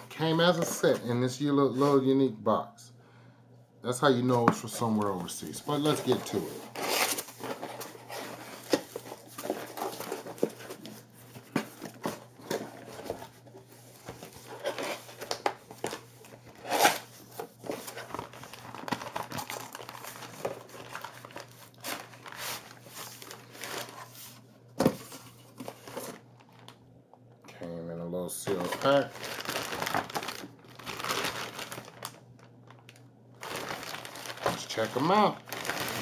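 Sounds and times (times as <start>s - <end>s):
plastic wrapping crinkling: 5.0s - 24.2s, 28.5s - 36.0s
cardboard box tearing: 6.7s - 7.8s.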